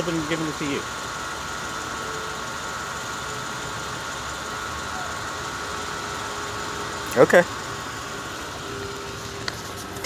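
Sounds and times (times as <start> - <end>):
high whining tones: 0.0 - 10.0
steady mechanical hum: 0.0 - 10.0.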